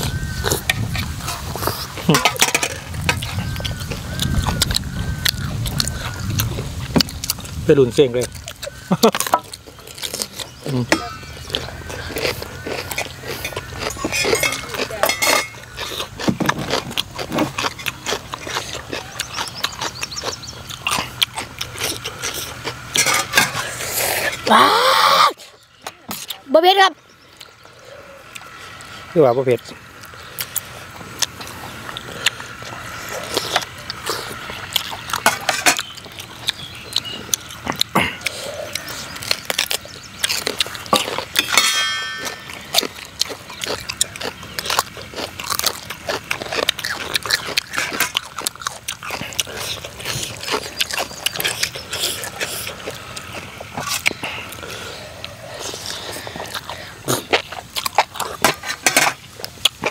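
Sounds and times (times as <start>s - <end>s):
chewing and slurping noodles: 0.0s - 7.6s, 8.2s - 24.5s, 30.0s - 59.9s
metal spoons scraping steel tray: 13.4s - 15.6s, 23.0s - 23.8s.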